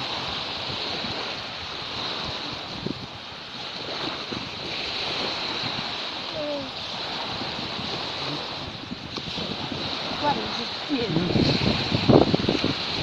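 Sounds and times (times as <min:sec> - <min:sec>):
sea waves washing onto beach: 0:00.0 - 0:13.0
wind buffeting microphone: 0:00.0 - 0:13.0.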